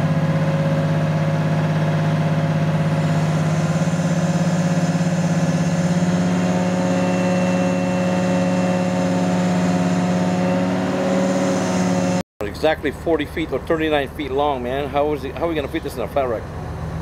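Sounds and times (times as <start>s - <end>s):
diesel engine idling: 0.0s - 17.0s
faint high whine: 2.8s - 12.6s.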